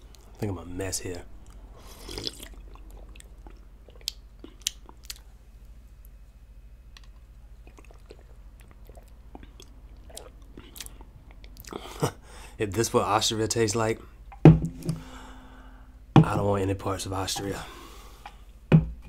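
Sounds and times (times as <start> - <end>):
person swallowing gulps: 7.6 - 11.9.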